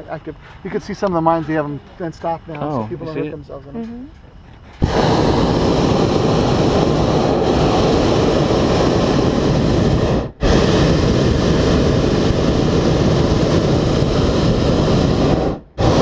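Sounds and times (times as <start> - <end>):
propane burner roaring: 0.0 - 16.0.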